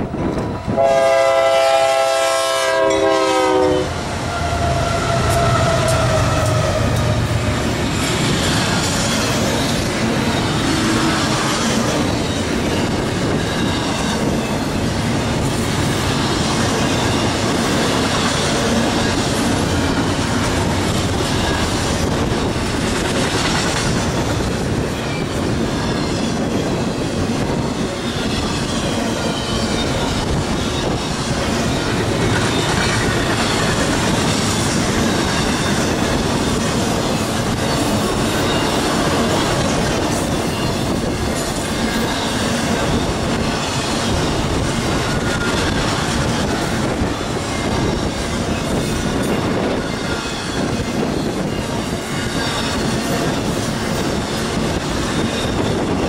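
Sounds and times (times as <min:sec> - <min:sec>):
train wheels rolling on rail: 0:00.0 - 0:56.0
high wheel squeal: 0:04.2 - 0:14.8, 0:24.8 - 0:56.0.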